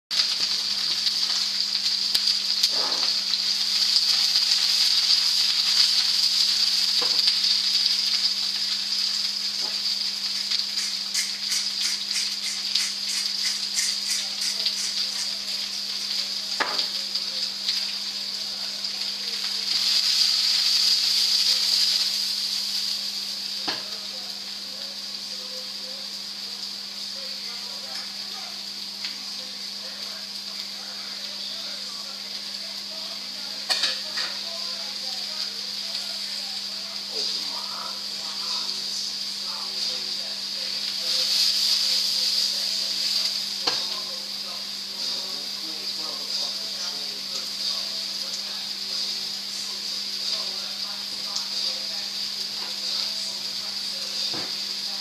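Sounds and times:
vegetables sizzling in a pan: 0.1 - 55.0
knocks in a pan: 7.0 - 7.3, 16.6 - 17.0, 23.6 - 23.9
pepper mill grinding: 10.3 - 15.5.

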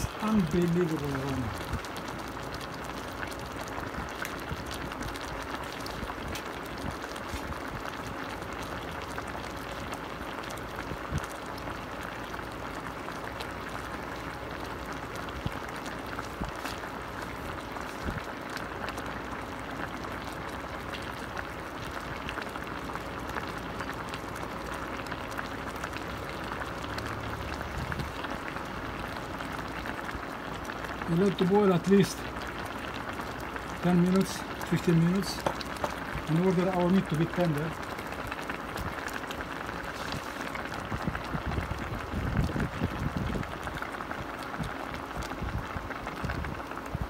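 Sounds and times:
faint steady hum: 0.0 - 47.0
sauce bubbling in a pot: 0.0 - 47.0
small pops: 35.4 - 36.2.

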